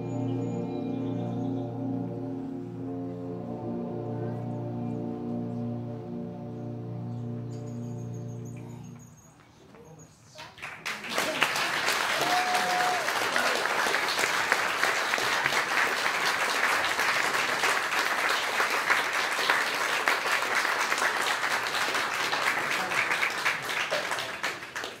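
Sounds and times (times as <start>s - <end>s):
audience applauding: 10.4s - 25.0s.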